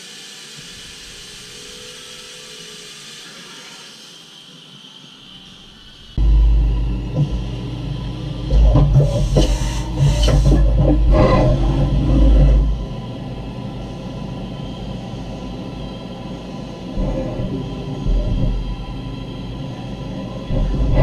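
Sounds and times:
milling machine cutting metal: 6.2s - 21.0s.

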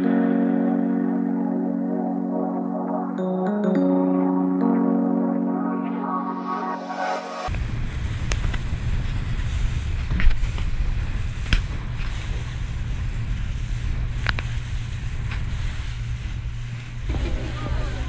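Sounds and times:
boat engine rumble: 7.4s - 18.0s.

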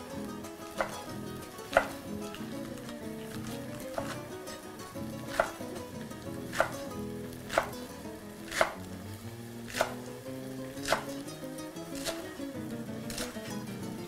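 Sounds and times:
knife chopping on wooden board: 0.8s - 1.0s, 1.7s - 2.0s, 3.9s - 4.2s, 5.3s - 5.6s, 6.5s - 6.8s, 7.5s - 7.8s, 8.5s - 8.8s, 9.7s - 10.1s, 10.8s - 11.1s, 12.0s - 12.2s.

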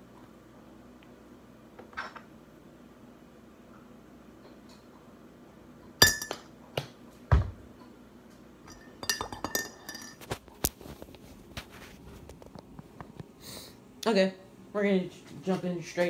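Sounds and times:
glass and ceramic kitchenware clinking: 6.0s - 6.5s, 8.6s - 10.2s.

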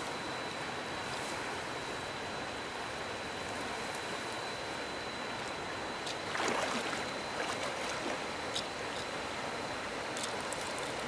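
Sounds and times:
river water rushing: 6.2s - 8.3s
water swish: 6.2s - 8.4s.

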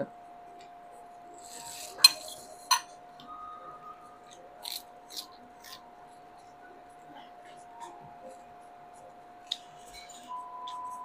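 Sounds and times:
faint steady hum: 0.0s - 11.0s
metal spoon clinking: 1.5s - 3.0s
soft chewing and mouth noises: 4.1s - 11.0s.

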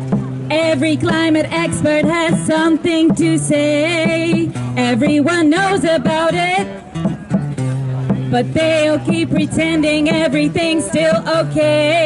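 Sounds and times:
strummed acoustic guitar: 0.0s - 12.0s
woman singing into microphone: 0.5s - 6.8s, 8.3s - 12.0s.

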